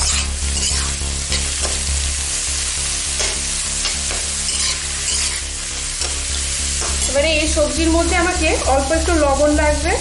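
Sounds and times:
vegetables sizzling in hot oil: 0.0 - 10.0
metal spatula scraping and knocking pan: 3.2 - 5.4.

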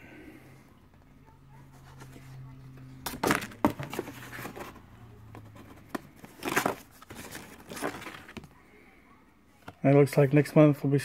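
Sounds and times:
cardboard and paper rustling: 1.6 - 8.6.

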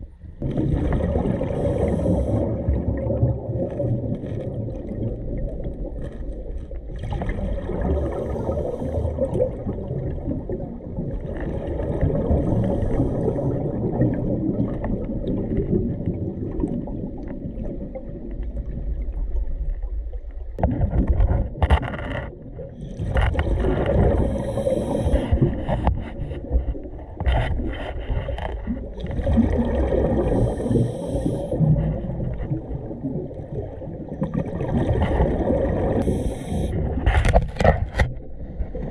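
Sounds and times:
low underwater rumble: 0.0 - 38.9
bubbly exhalations: 0.4 - 10.7, 22.7 - 38.9
diver breathing through regulator: 1.4 - 2.8, 8.0 - 9.4, 12.3 - 13.8, 22.8 - 28.7, 30.1 - 32.2, 36.0 - 37.4.

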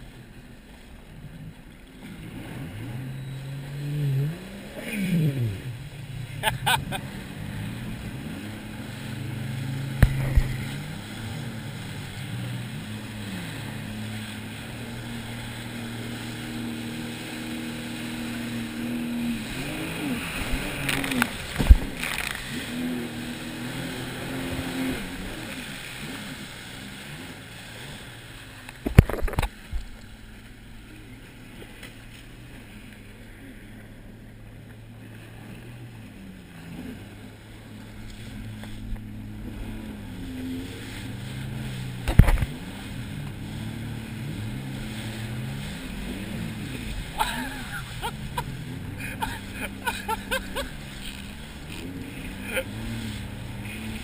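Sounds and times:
personal watercraft engine revving: 0.0 - 54.0
hull slamming onto waves: 9.6 - 11.0, 20.2 - 22.5, 41.8 - 43.5.

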